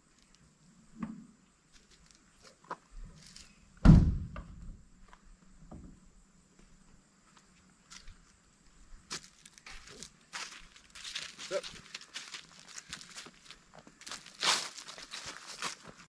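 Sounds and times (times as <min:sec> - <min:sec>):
heavy loud thunk: 0:03.8 - 0:04.7
light knocks and clunks: 0:05.6 - 0:06.0.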